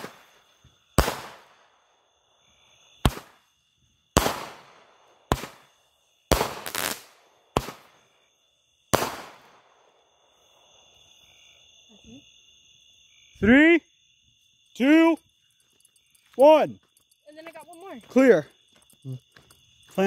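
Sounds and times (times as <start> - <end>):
fireworks bangs: 0.0 - 1.7, 3.0 - 3.4, 4.1 - 8.0, 8.9 - 9.8
crickets trilling: 0.0 - 20.0.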